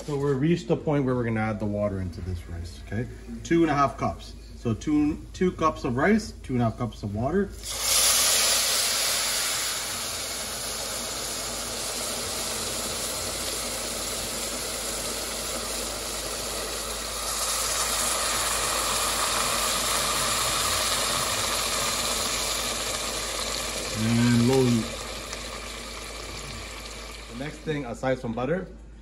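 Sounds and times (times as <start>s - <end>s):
rice sizzling and hissing: 7.6s - 27.8s
water poured into pot: 7.6s - 28.0s.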